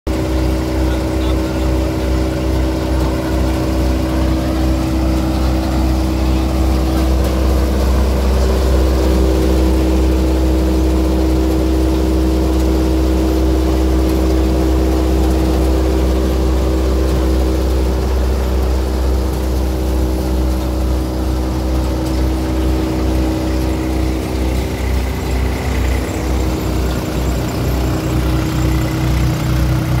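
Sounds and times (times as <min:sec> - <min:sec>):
thresher drum whirring: 0:00.1 - 0:30.0
tractor diesel engine running: 0:00.1 - 0:30.0.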